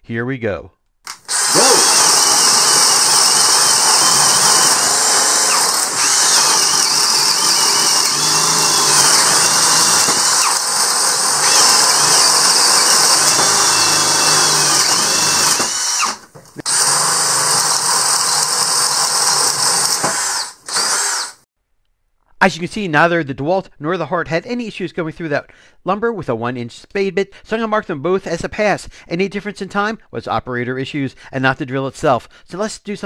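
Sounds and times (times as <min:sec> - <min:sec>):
cordless drill boring through wood: 0:01.1 - 0:21.5.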